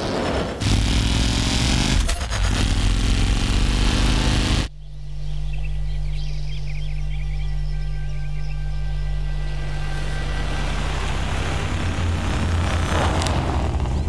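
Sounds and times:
low steady drone: 0.6s - 14.0s
loud rushing rumble: 9.5s - 14.0s.

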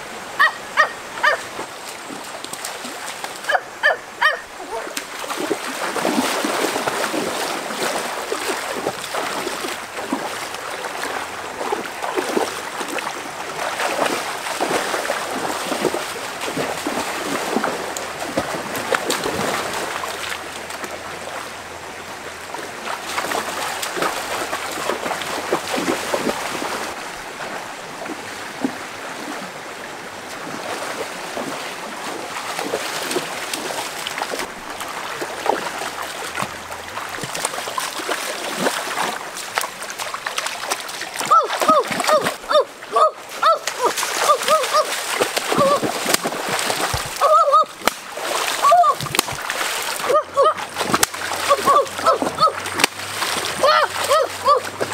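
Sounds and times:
people wading splashing water: 0.0s - 54.9s
stream water rushing: 0.0s - 54.9s.

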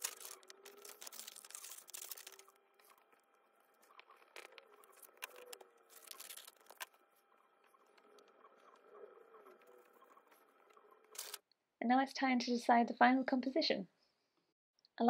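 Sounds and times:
paper rustling: 0.0s - 3.1s, 3.8s - 7.0s.

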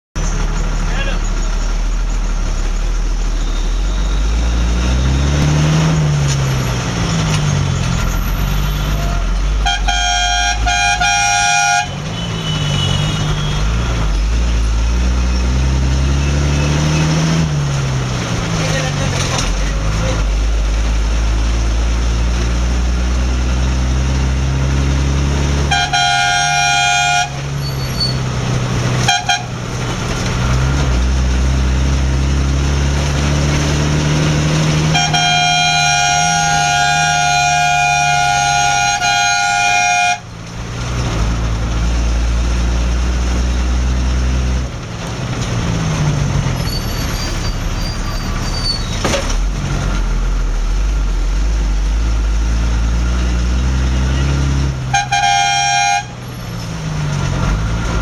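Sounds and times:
engine revving: 0.2s - 58.0s
vehicle horn honking: 9.6s - 13.8s, 25.7s - 28.2s, 29.0s - 29.6s, 34.8s - 40.3s, 54.9s - 56.2s.

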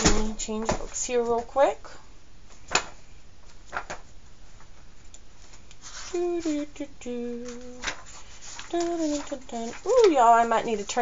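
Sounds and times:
pages rustling: 2.5s - 6.7s, 7.3s - 11.0s.

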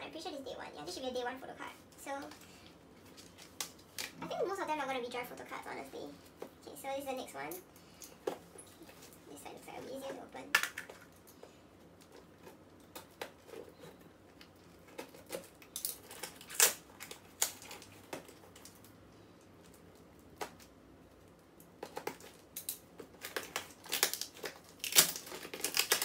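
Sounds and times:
packaging crinkling and tearing: 11.9s - 19.0s, 19.6s - 26.0s.

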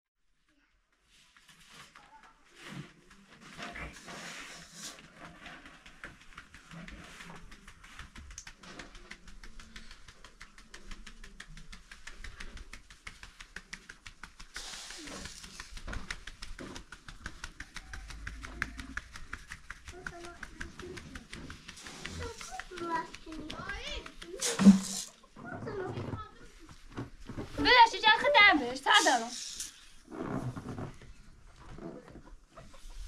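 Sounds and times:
sieve rattling with light ticks: 4.6s - 25.3s, 27.0s - 29.9s.

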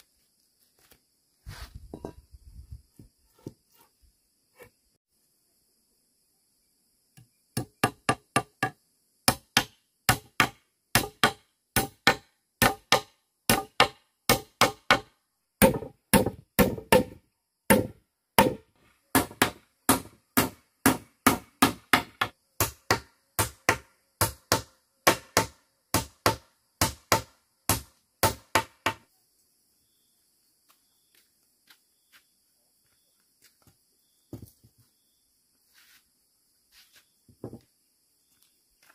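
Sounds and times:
tool chopping bamboo: 7.6s - 29.0s.

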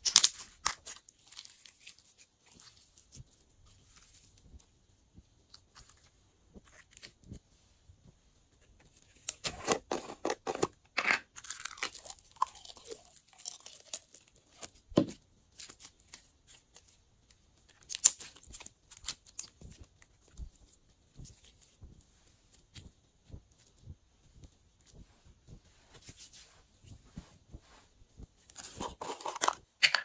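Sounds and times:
slime crackling and popping: 0.0s - 2.2s, 10.5s - 14.8s, 17.7s - 19.9s.

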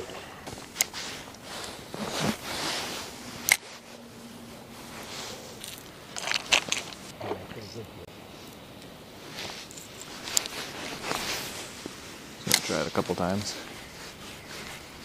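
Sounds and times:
fishing reel clicks and rustling: 5.6s - 7.1s.

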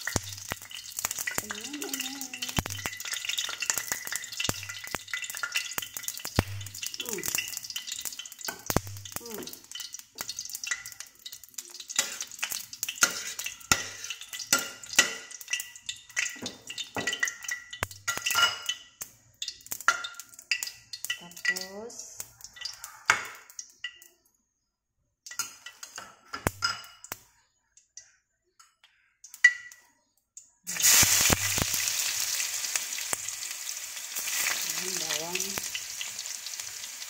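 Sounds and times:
garlic sizzling and crackling in oil: 0.0s - 24.2s, 25.3s - 27.3s, 30.7s - 37.0s
metal ladle stirring in wok: 2.3s - 17.5s.

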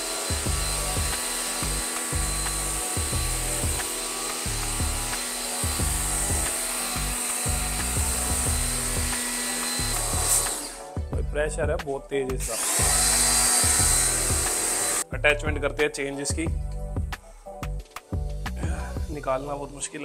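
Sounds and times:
pressure washer spraying water: 0.0s - 11.0s, 12.5s - 15.1s.

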